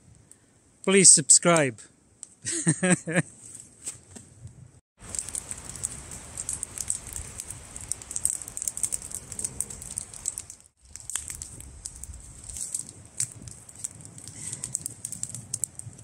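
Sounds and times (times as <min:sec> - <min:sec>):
campfire crackling and popping: 0:05.0 - 0:16.0.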